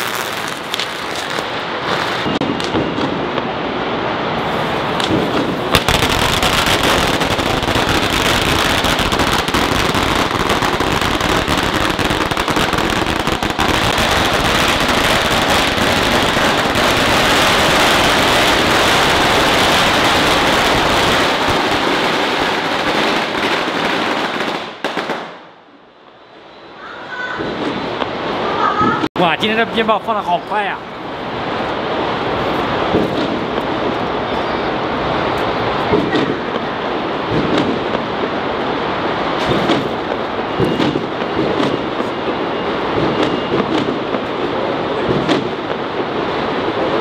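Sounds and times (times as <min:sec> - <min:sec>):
firecrackers crackling: 0:00.0 - 0:25.6, 0:27.4 - 0:29.4, 0:31.0 - 0:47.0.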